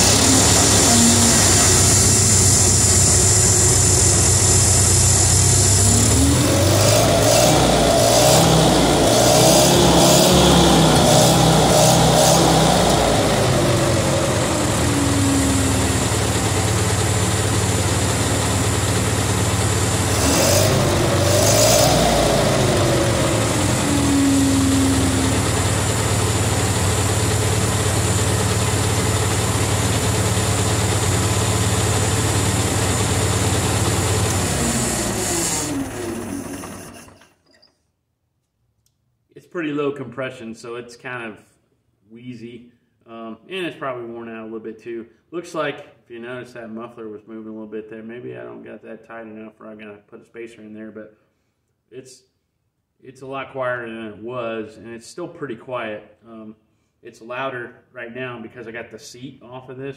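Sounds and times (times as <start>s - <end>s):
forklift engine idling and revving: 0.0s - 37.4s.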